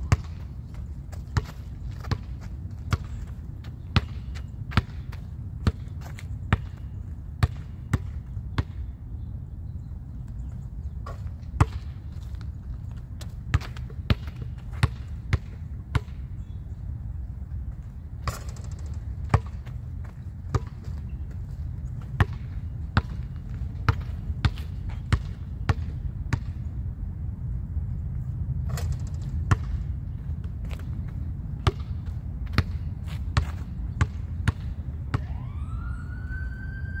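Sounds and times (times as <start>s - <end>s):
basketball bouncing on asphalt: 0.0s - 8.9s, 10.2s - 16.7s, 17.6s - 26.7s, 28.6s - 35.3s
steady low rumble: 0.0s - 35.8s
siren rising in pitch: 35.2s - 37.0s.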